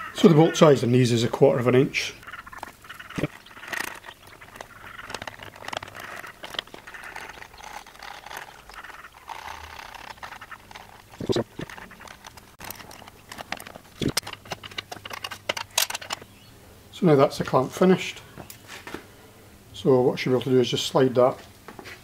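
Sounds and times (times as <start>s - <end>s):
small steel parts clicking and rattling: 2.2s - 16.3s.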